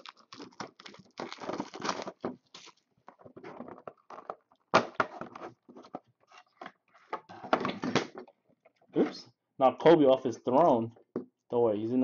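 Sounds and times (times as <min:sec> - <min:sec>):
cellophane wrap crinkling: 0:00.0 - 0:02.8.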